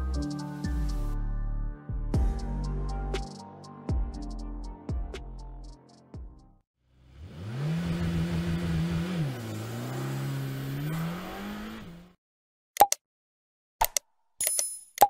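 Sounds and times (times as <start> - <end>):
car engine accelerating hard: 7.0 - 12.2
sharp clicks and pops: 12.8 - 13.0, 13.8 - 15.0.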